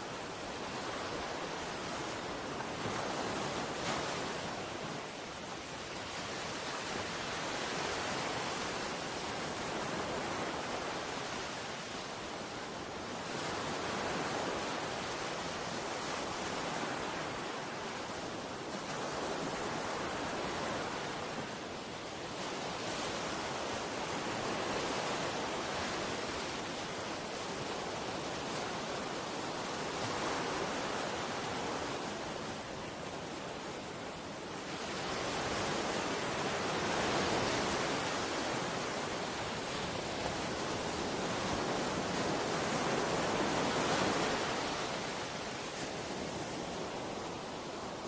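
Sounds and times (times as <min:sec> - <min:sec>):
sea waves washing: 0:13.0 - 0:48.0.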